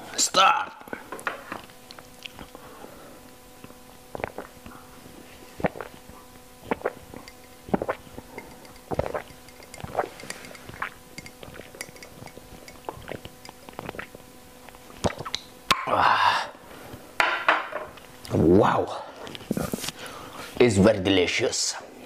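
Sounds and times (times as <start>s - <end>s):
person gulping: 3.6s - 15.9s.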